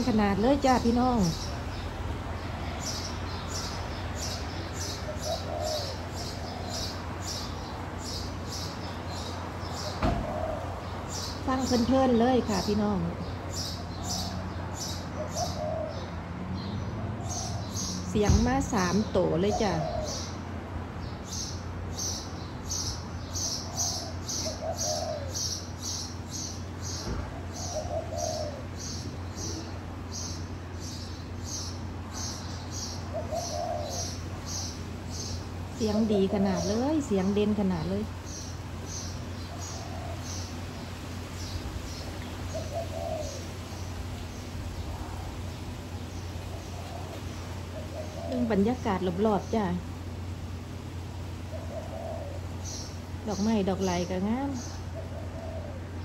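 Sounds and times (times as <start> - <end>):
dove cooing: 2.6 - 20.5, 22.0 - 49.6, 51.2 - 56.0.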